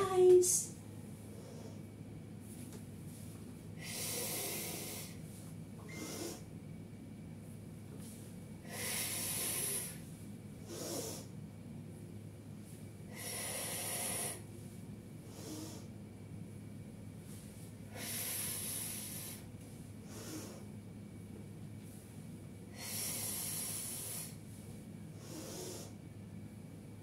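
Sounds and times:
woman breathing hard: 3.7 - 5.3, 5.9 - 6.5, 8.6 - 11.4, 13.1 - 14.5, 17.8 - 20.7, 22.7 - 24.4.

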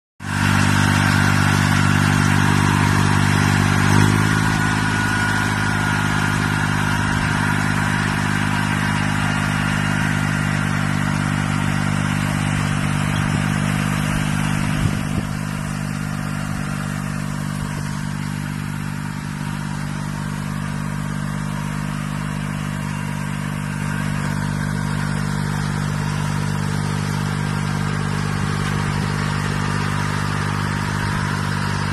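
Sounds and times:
high whine: 0.2 - 21.8
tractor engine running: 0.2 - 31.9.

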